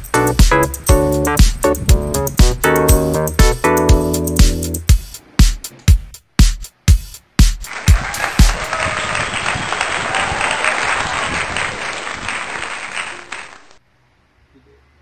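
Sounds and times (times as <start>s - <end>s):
dance music kick drum beats: 0.0s - 8.6s
crowd applause: 7.7s - 13.8s.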